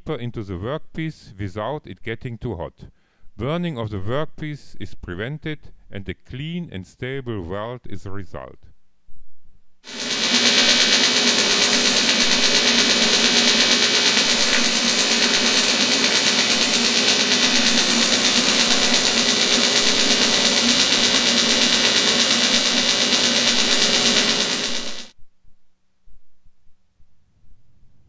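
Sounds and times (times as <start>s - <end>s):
welding arc hissing and humming: 9.9s - 25.2s.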